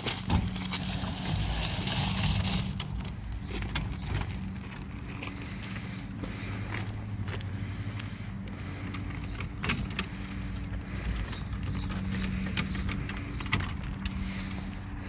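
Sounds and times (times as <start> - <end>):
cart wheels rolling on concrete: 0.0 - 15.0
steel frame rattling and clicking: 8.9 - 14.8.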